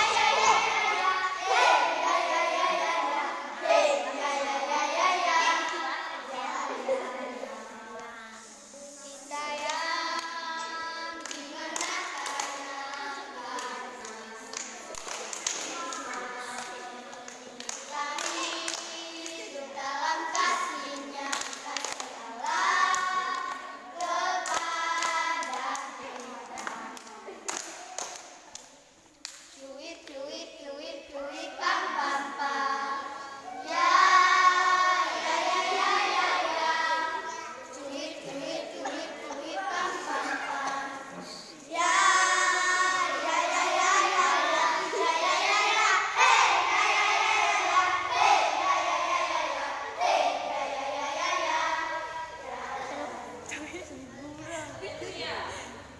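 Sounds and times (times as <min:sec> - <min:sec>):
children singing together: 0:00.0 - 0:55.9
hand claps: 0:11.2 - 0:19.6, 0:20.3 - 0:30.2.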